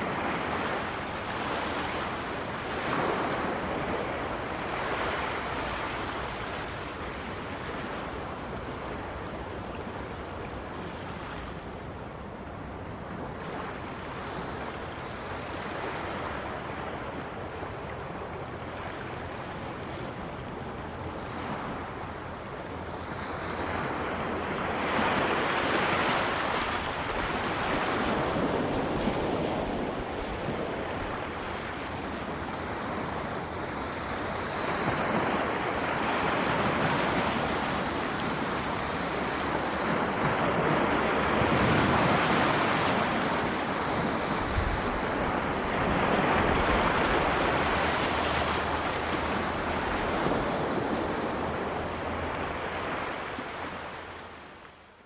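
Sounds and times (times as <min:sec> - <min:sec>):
sea surf breaking: 0:23.3 - 0:54.5.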